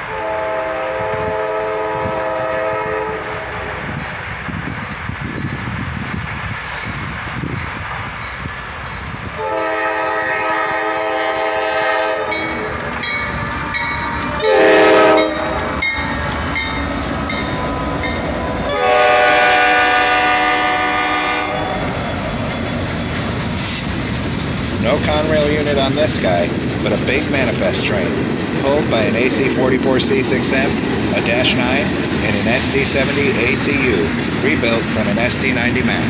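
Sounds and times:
train horn blasts: 0:00.0 - 0:03.8, 0:09.3 - 0:12.7, 0:13.4 - 0:22.0
freight train rumbling: 0:00.0 - 0:36.0.

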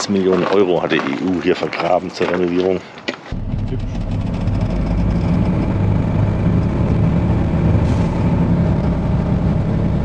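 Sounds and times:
diesel truck engine running: 0:03.3 - 0:10.0.

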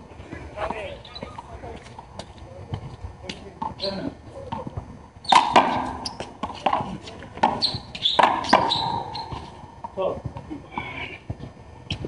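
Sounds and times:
sneakers squeaking on concrete: 0:00.7 - 0:01.5, 0:03.6 - 0:09.6.

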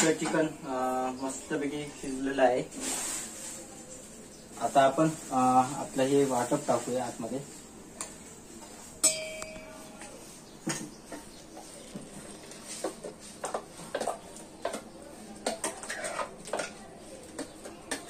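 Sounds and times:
metallic clang: 0:09.0 - 0:10.0
spoon scraping metal jar: 0:15.7 - 0:16.7.

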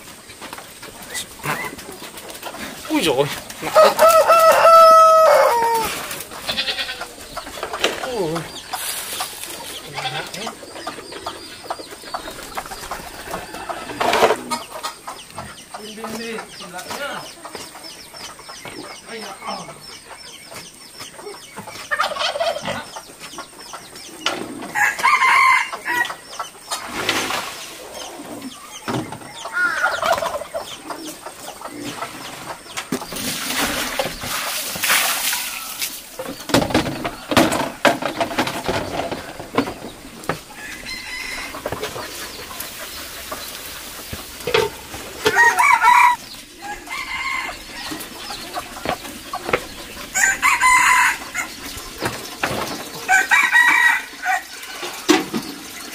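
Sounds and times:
rooster crowing: 0:03.6 - 0:06.1, 0:24.7 - 0:26.2, 0:40.5 - 0:41.8, 0:45.2 - 0:48.3, 0:50.1 - 0:51.5, 0:53.1 - 0:54.5.

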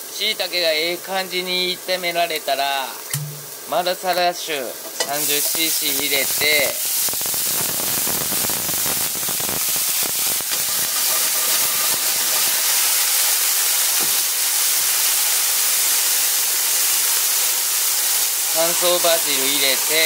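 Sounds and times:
wine sizzling in frying pan: 0:00.0 - 0:20.0
knocks on pan: 0:03.1 - 0:03.5.

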